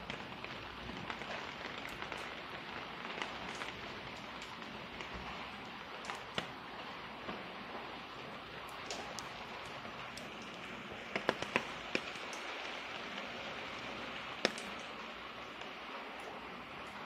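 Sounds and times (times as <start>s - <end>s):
steady rain: 0.0s - 17.0s.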